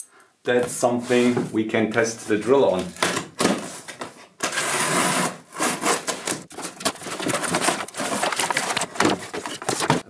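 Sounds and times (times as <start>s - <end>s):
cardboard flaps and paper rustling: 5.8s - 10.0s.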